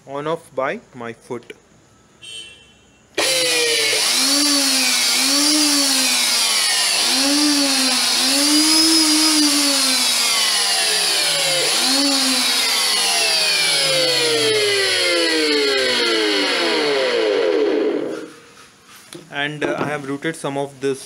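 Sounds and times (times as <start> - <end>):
router whining through wood: 3.2 - 18.5.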